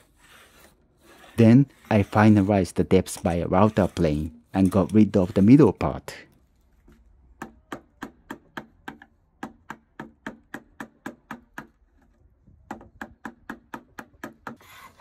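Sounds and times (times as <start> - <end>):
wood chisel tapping into board: 7.4 - 11.8, 12.7 - 14.6.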